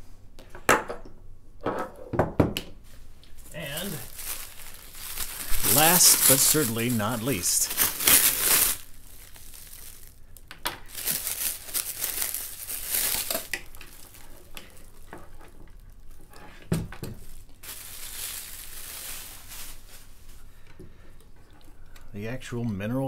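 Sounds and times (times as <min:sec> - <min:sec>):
plastic wrap crinkling and tearing: 0:03.3 - 0:16.4, 0:17.0 - 0:20.5.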